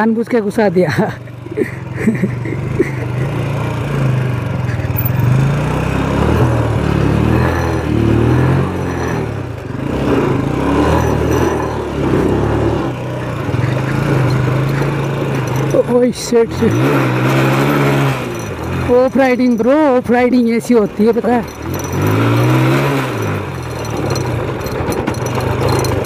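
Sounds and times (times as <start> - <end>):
motorcycle engine revving: 0.9 - 26.0.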